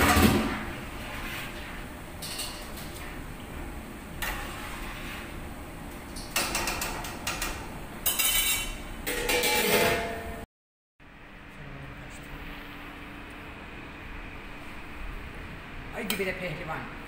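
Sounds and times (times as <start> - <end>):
metal lid clattering: 8.1 - 10.3.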